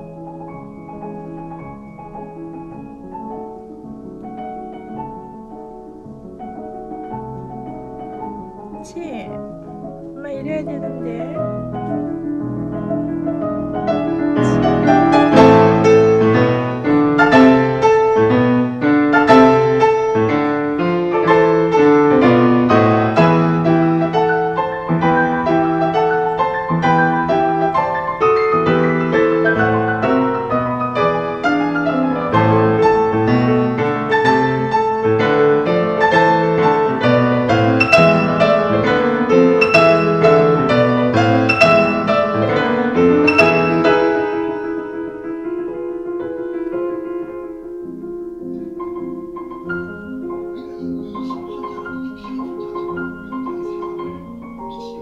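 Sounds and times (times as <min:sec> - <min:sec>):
piano music: 0:00.0 - 0:55.0.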